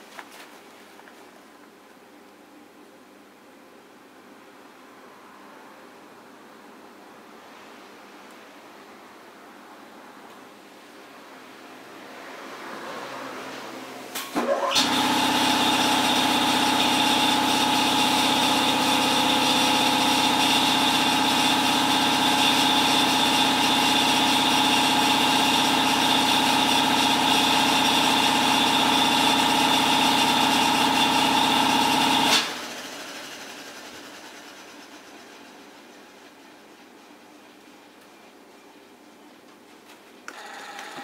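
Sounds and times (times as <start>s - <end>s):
loud machine running: 14.7s - 35.3s.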